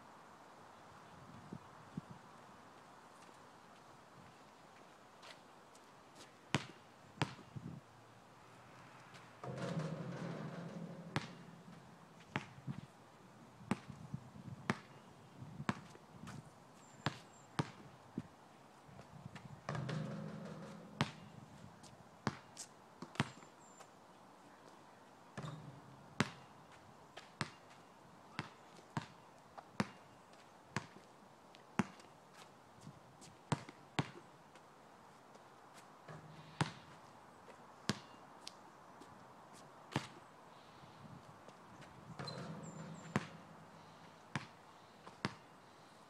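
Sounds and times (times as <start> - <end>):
basketball bouncing on asphalt: 6.5 - 7.6, 9.4 - 12.9, 13.6 - 14.0, 14.6 - 16.4, 17.0 - 17.9, 19.4 - 21.4, 22.2 - 23.4, 25.4 - 26.5, 27.2 - 29.2, 29.8 - 31.1, 31.8 - 32.1, 33.2 - 34.2, 36.1 - 37.0, 37.9 - 38.2, 39.9 - 40.2, 42.2 - 45.5
ball striking hoop with clang: 9.4 - 12.0, 19.7 - 21.3, 25.4 - 25.9, 42.2 - 43.6.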